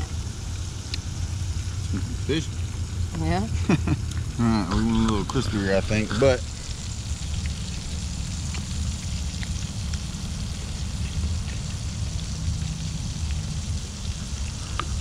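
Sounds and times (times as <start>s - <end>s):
cooking oil sizzling: 0.0s - 15.0s
low rumble: 0.0s - 15.0s.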